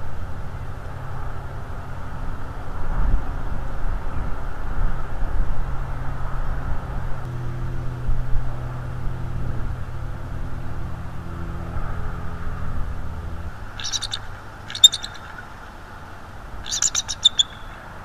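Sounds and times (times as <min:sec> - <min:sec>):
engine hum with low rumble: 0:00.0 - 0:18.0
eagle chittering call: 0:13.7 - 0:18.0.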